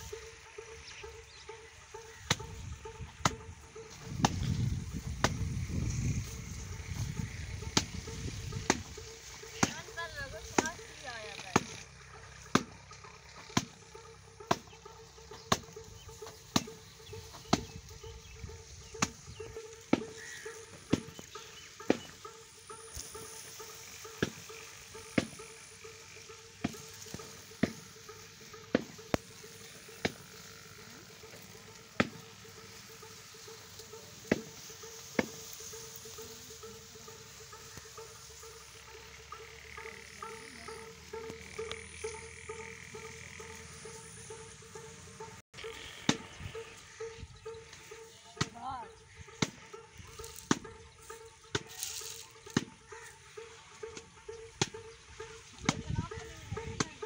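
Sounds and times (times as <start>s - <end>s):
dry grass crackling: 0.0s - 57.0s
granules pattering onto grass: 50.1s - 53.1s.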